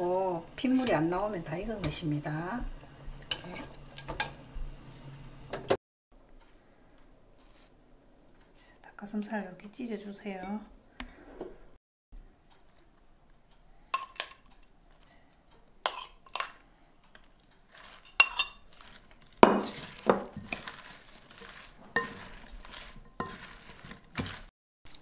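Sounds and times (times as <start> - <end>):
salad leaves rustling: 17.1 - 25.0
metal spoon clinking on glass bowl: 18.0 - 18.7.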